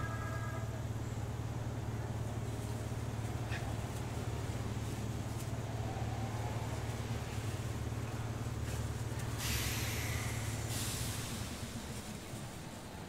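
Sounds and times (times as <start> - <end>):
electric train humming: 0.0 - 13.0
compressed air hiss: 9.4 - 12.0.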